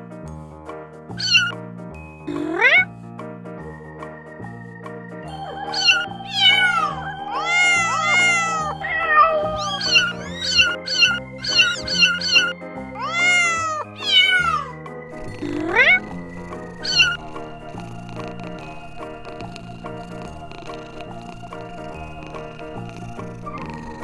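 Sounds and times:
background music with held chords: 0.0 - 24.0
kittens mewing: 1.2 - 1.6, 2.3 - 2.9, 5.4 - 18.7.

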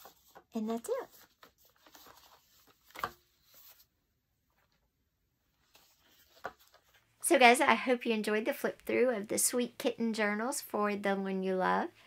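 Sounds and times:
soft paper rustles: 0.0 - 4.8, 5.5 - 7.2.

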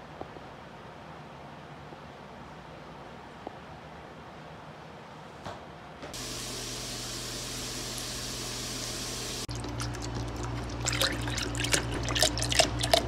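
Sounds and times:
liquid pouring hiss: 6.2 - 13.0
low steady hum: 6.2 - 13.0
liquid splashing: 6.5 - 13.0.

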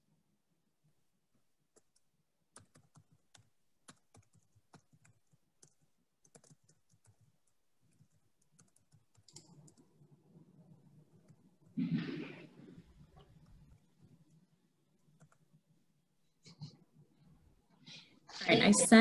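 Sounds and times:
typing on computer keyboard: 1.7 - 10.0, 15.1 - 15.6.

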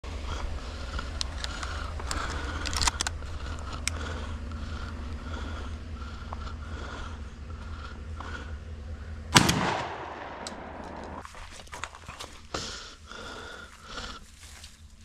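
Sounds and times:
sharp clicks and rattles: 0.8 - 6.8
vehicle rolling on gravel: 10.8 - 12.5.

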